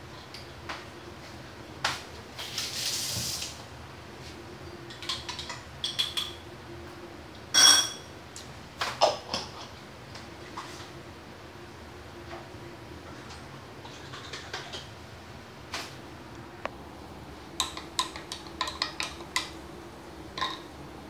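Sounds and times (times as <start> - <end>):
faint steady hum: 0.0 - 21.0
dishes and cutlery clinking: 4.9 - 6.4, 7.5 - 8.1, 20.4 - 20.7
loud ringing dish clink: 7.5 - 8.1.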